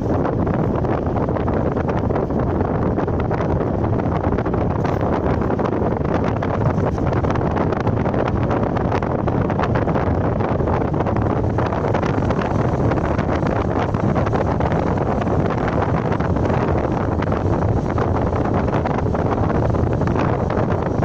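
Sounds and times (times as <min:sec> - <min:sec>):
car road noise: 0:00.0 - 0:21.0
wind buffeting microphone: 0:00.0 - 0:21.0.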